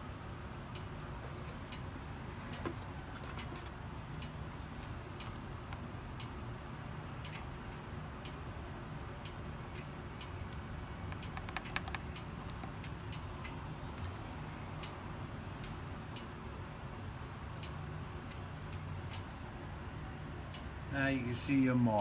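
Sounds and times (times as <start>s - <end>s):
light ticking clicks: 0.7s - 19.5s, 20.4s - 20.8s.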